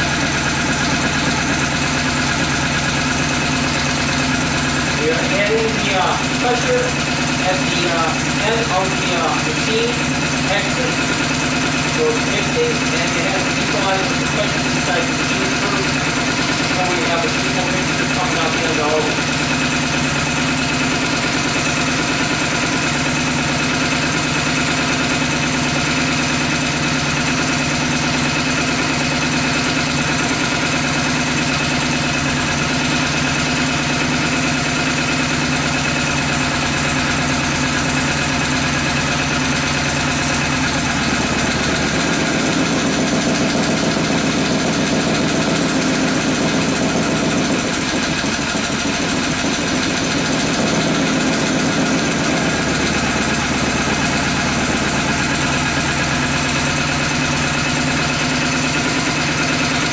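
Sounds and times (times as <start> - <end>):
small engine running: 0.0 - 59.9.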